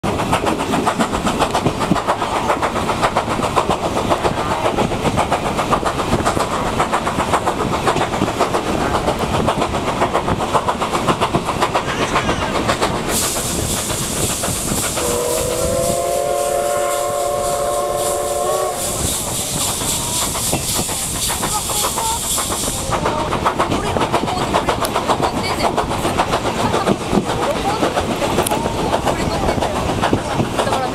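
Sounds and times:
steam train rhythmic beat: 0:00.0 - 0:30.9
loud hiss of steam: 0:00.1 - 0:30.9
steam locomotive whistle: 0:14.9 - 0:20.1.

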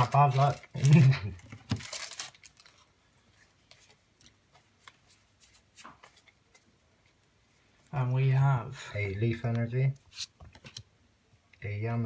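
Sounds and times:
foil wrapper crinkling: 0:00.0 - 0:03.0.

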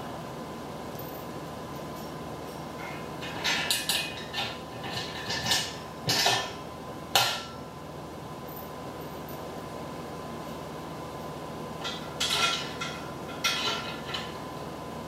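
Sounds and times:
metal bolts clinking and rattling: 0:11.8 - 0:14.4.

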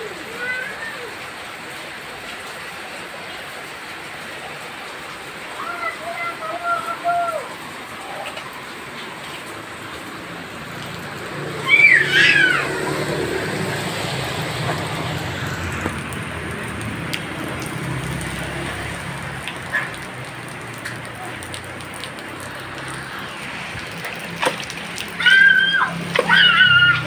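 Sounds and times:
rain falling on concrete: 0:00.0 - 0:27.0
child crying out: 0:05.6 - 0:07.5, 0:11.5 - 0:13.0, 0:25.1 - 0:27.0.

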